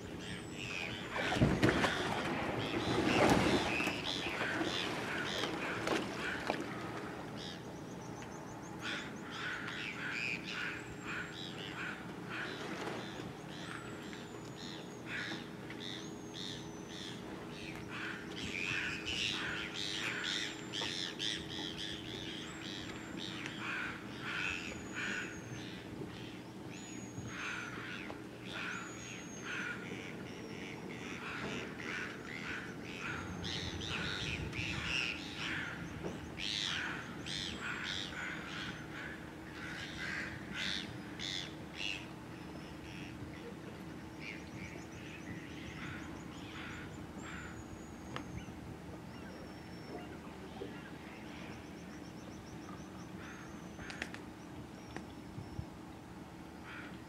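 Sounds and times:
steady low hum: 0.0s - 57.0s
harsh caw-like bird calls: 8.8s - 14.0s, 14.6s - 26.4s, 27.3s - 42.1s, 45.0s - 47.7s, 53.2s - 54.1s, 56.6s - 57.0s.

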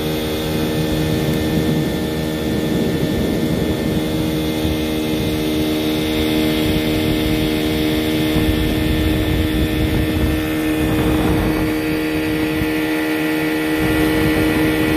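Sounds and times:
boat wake washing: 0.0s - 14.9s
outboard motor running: 0.0s - 14.9s.

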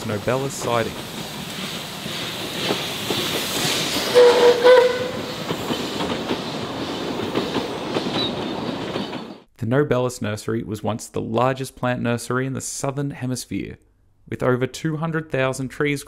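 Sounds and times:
train wheels clicking rattle: 0.0s - 9.5s
steam whistle blast: 4.0s - 5.3s.

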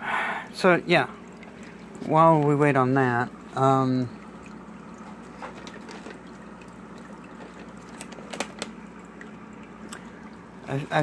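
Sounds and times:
water trickling and splashing: 0.3s - 11.0s.

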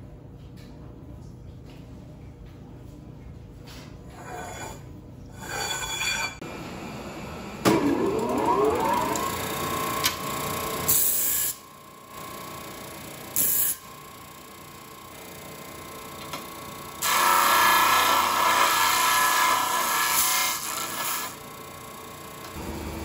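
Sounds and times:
metal scraping and handling: 4.1s - 6.4s
disc sander motor whining: 7.7s - 10.3s.

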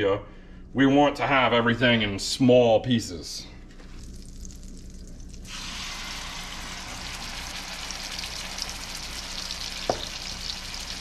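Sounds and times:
butter sizzling in a skillet: 4.2s - 11.0s.

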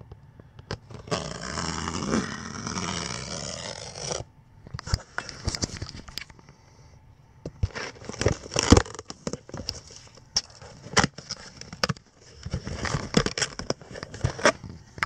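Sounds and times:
cardboard flaps scraping: 0.9s - 6.1s
packing paper crinkling: 7.7s - 15.0s.

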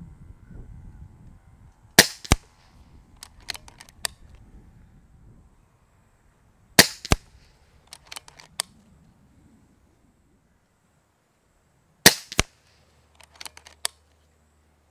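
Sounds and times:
pellet striking target: 2.0s - 2.4s, 6.8s - 7.3s, 12.1s - 12.5s
air rifle shot crack: 2.0s - 2.6s, 6.8s - 7.4s, 12.0s - 12.6s
light clicks of rifle action: 3.1s - 4.4s, 7.0s - 8.9s, 12.3s - 14.3s.

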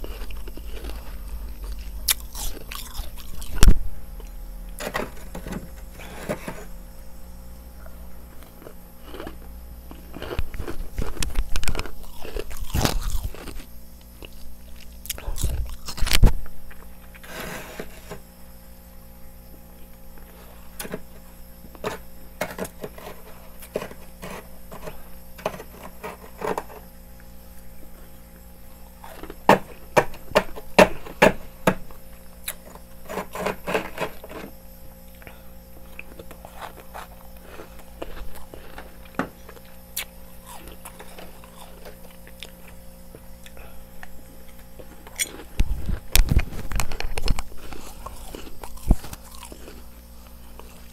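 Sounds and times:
steady low hum: 0.0s - 50.9s
metal spoon scraping frost: 4.8s - 6.8s, 21.8s - 26.8s, 33.0s - 34.5s.

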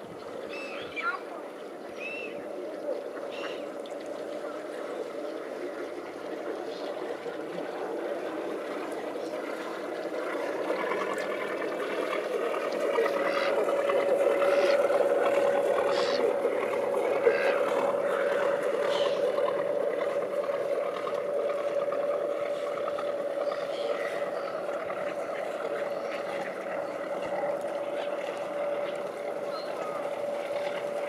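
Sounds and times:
motor boat engine humming: 0.0s - 31.0s
gull calls: 15.7s - 19.5s.

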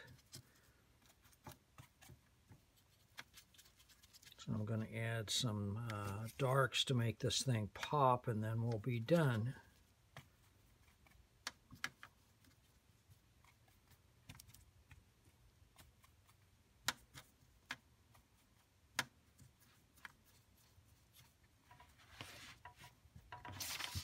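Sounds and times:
faint clicks and taps: 9.6s - 20.3s, 21.1s - 24.0s.

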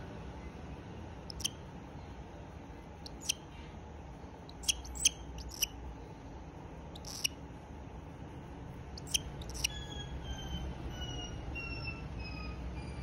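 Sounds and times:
cockatiel chirping: 1.3s - 1.6s, 3.1s - 3.4s, 4.5s - 5.7s, 7.0s - 7.3s, 9.0s - 11.9s.

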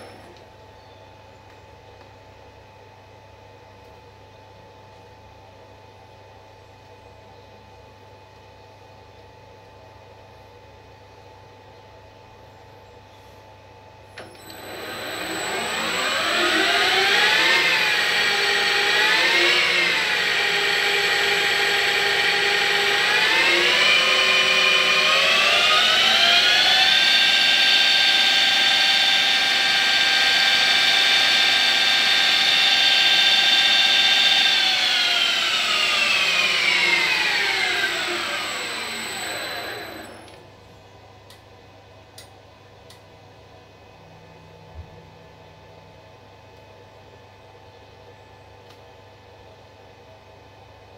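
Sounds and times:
lathe spindle motor whining: 14.2s - 40.4s.

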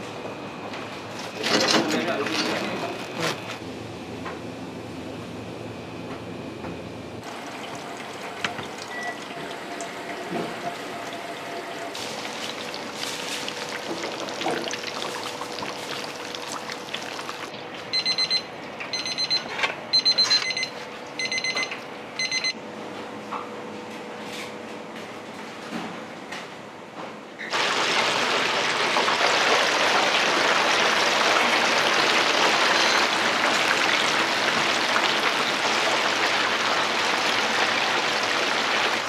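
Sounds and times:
kitchen timer beeping: 8.8s - 9.3s, 17.9s - 22.6s
knocks of kitchen work: 10.2s - 10.8s.

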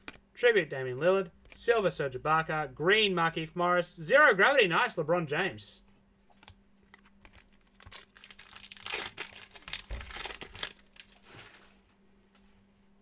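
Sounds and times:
wrapper tearing and crinkling: 7.3s - 11.8s.

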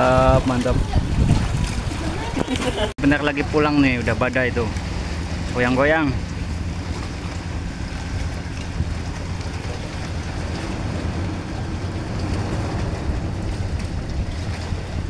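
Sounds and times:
water slapping a boat: 0.0s - 15.0s
wind buffeting microphone: 0.0s - 15.0s
low steady drone: 3.0s - 15.0s.

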